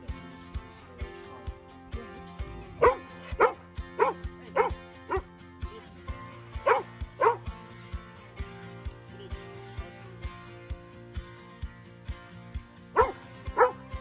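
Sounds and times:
music with steady beat: 0:00.0 - 0:14.0
dog barking: 0:02.7 - 0:05.3, 0:06.6 - 0:07.5, 0:13.0 - 0:14.0.

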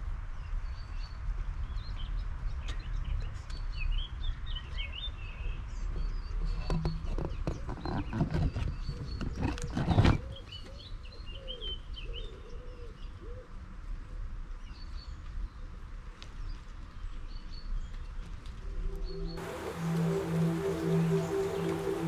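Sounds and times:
small birds chirping: 0:14.6 - 0:22.0
steady hiss: 0:19.4 - 0:22.0.

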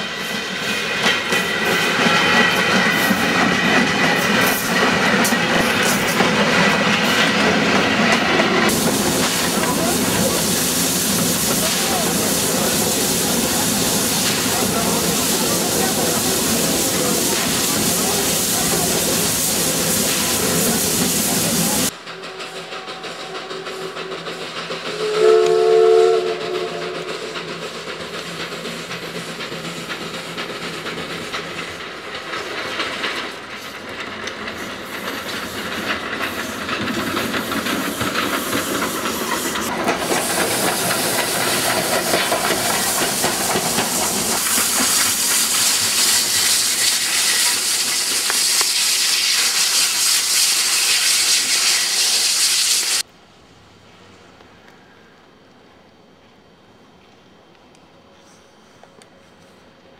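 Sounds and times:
steam locomotive hissing: 0:00.0 - 0:53.1
steam locomotive whistle: 0:24.9 - 0:27.4.

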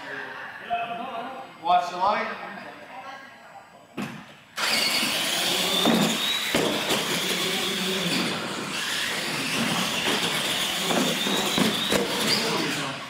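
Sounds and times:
toy truck motor whine: 0:04.6 - 0:13.0
tyres on concrete: 0:05.5 - 0:12.8.

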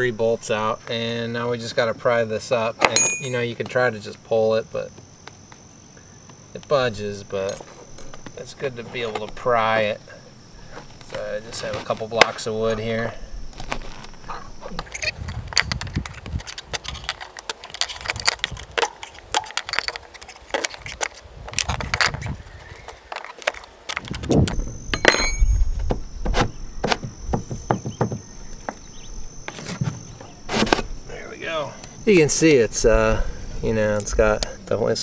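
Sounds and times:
metallic clinks and scrapes: 0:02.9 - 0:03.4, 0:14.6 - 0:22.4, 0:25.0 - 0:25.7.

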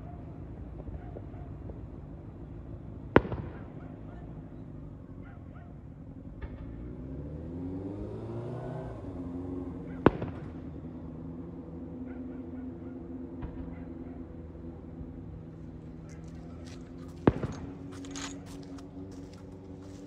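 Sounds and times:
firework booms: 0:03.2 - 0:03.7, 0:10.1 - 0:10.6.

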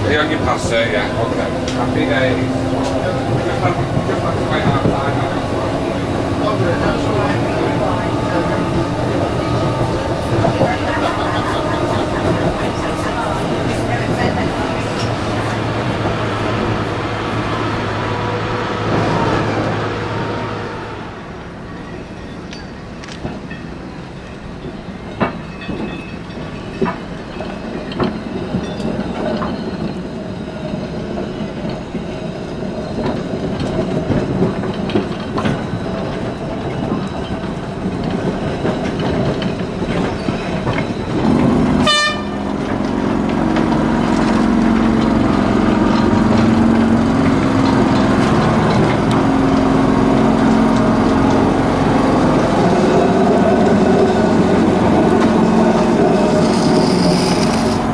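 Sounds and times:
tram wheels clicking over rail joints: 0:00.0 - 0:19.8, 0:21.6 - 0:57.9
tram mechanical hum: 0:00.0 - 0:57.9
tram rolling noise: 0:00.0 - 0:57.9.

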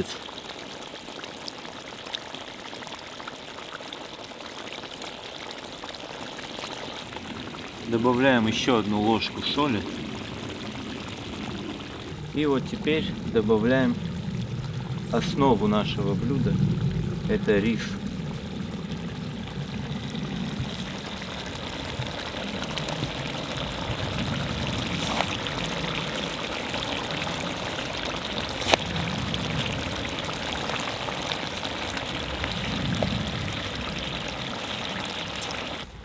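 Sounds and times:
broth bubbling and hissing: 0:00.0 - 0:36.0.

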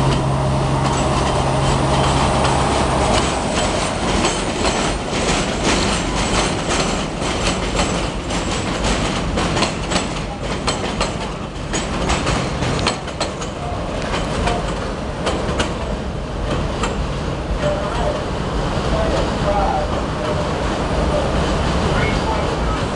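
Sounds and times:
train rumbling past: 0:00.0 - 0:22.9
wheel clicks over rail joints: 0:00.1 - 0:18.2.

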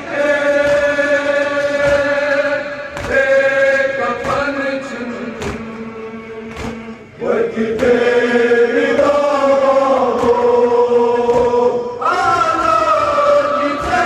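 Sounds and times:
men chanting a lament: 0:00.0 - 0:14.0.

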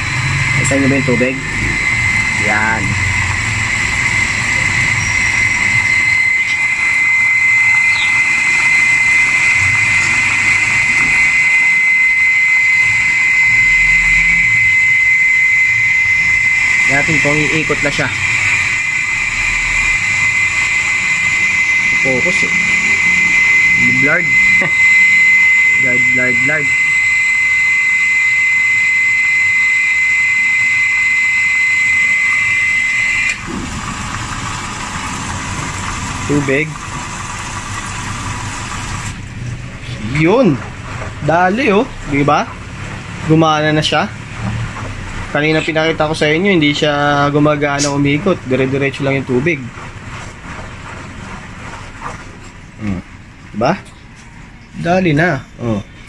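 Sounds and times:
low hum: 0:00.0 - 0:41.2
washing machine water rushing in: 0:00.0 - 0:55.3
thin high whine: 0:00.0 - 0:56.0.

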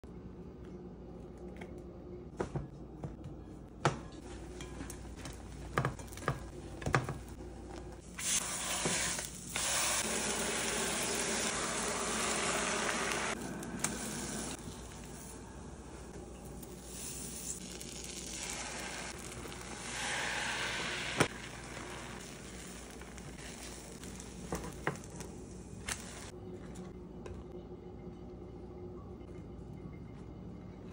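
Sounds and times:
eggs sizzling in a frying pan: 0:08.1 - 0:26.4.

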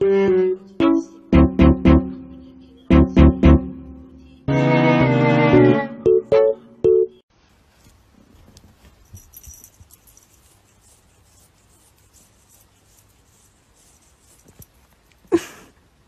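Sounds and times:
held musical note: 0:00.0 - 0:07.2.

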